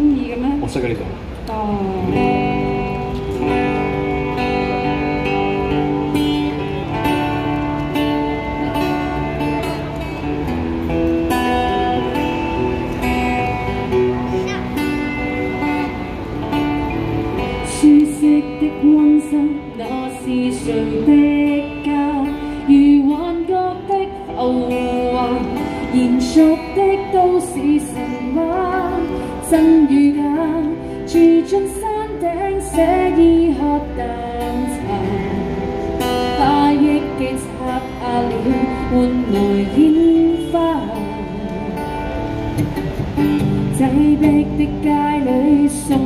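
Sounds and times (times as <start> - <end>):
strummed acoustic guitar: 2.1 - 46.0
woman singing pop ballad: 17.5 - 42.1, 43.6 - 46.0.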